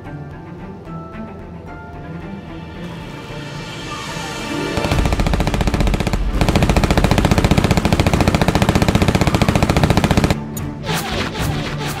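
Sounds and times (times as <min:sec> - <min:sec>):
machine gun rapid burst: 0:04.8 - 0:10.4.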